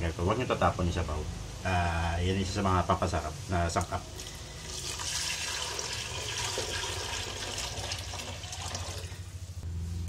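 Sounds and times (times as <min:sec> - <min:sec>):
liquid pouring into a metal pot: 0:04.1 - 0:09.3.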